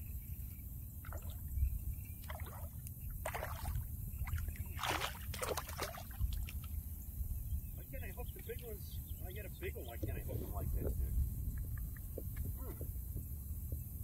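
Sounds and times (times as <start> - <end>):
steady low rumble: 0.0 - 14.0
fish splashing in water: 2.2 - 6.8.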